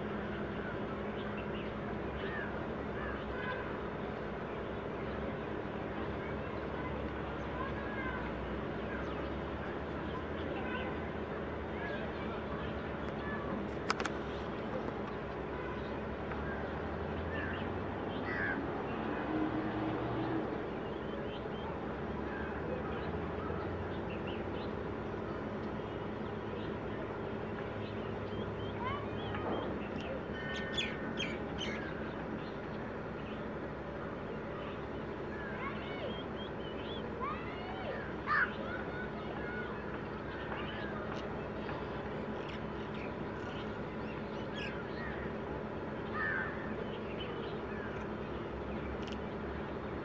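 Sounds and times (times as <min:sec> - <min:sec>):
small birds chirping: 0:00.0 - 0:50.0
steady background noise: 0:00.0 - 0:50.0
steady low hum: 0:00.0 - 0:50.0
harsh bird call: 0:34.4 - 0:48.5.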